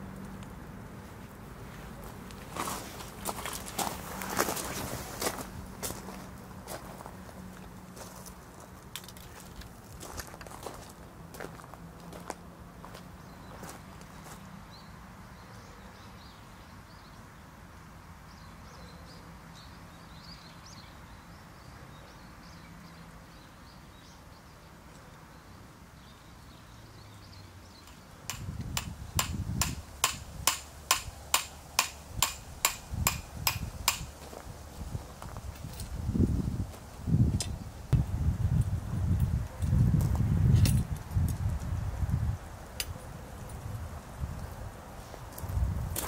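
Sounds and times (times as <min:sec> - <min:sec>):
hammer striking metal tent peg: 0:28.3 - 0:34.1.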